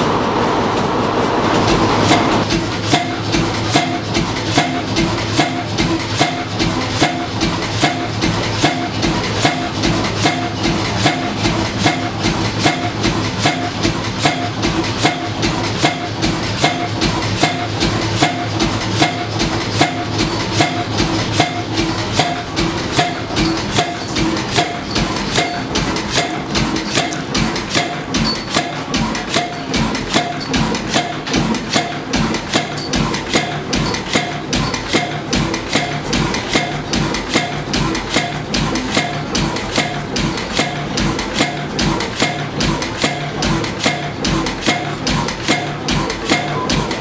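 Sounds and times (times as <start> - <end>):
stationary engine running: 0.0 - 47.0
valve gear clicking: 4.3 - 47.0.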